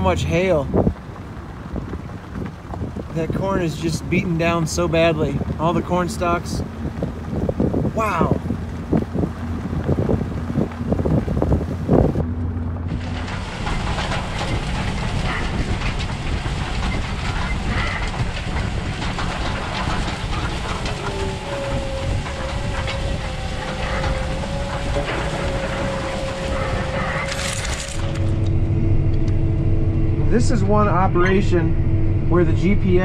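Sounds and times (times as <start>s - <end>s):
low engine rumble: 0.0s - 33.0s
steady whine: 3.2s - 33.0s
farm toolbar clattering in soil: 12.8s - 28.4s.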